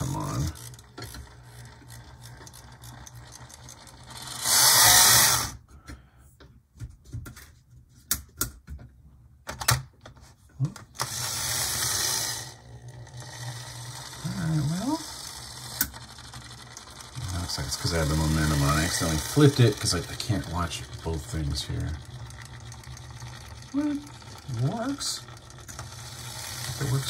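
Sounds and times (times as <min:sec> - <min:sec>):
model train motor whirring: 0:00.0 - 0:05.6, 0:11.0 - 0:27.0.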